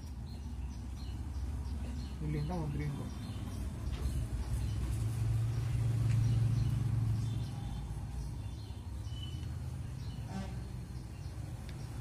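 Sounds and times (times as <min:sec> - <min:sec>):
faint bird chirps: 0:05.6 - 0:12.0.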